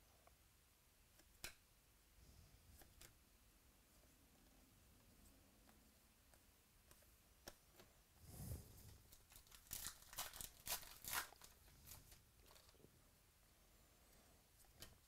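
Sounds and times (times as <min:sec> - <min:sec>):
wrapper crinkling tears: 0:09.1 - 0:12.8
wrapper rustling: 0:09.1 - 0:12.9.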